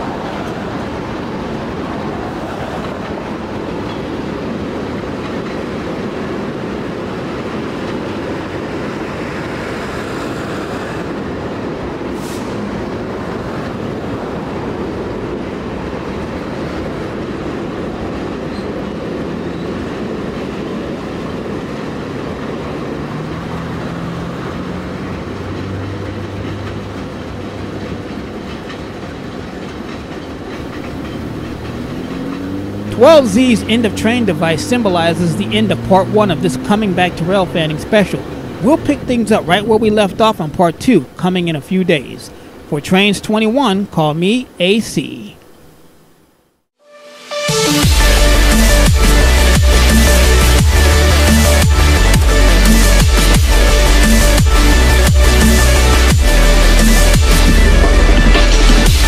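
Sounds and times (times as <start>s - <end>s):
freight cars rolling on rails: 0.0s - 45.7s.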